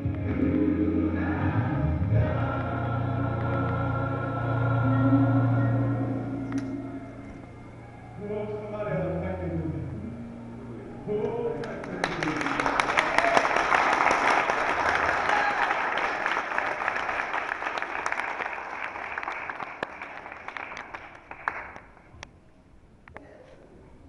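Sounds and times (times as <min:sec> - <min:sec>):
congregation applauding: 0:11.6 - 0:22.0.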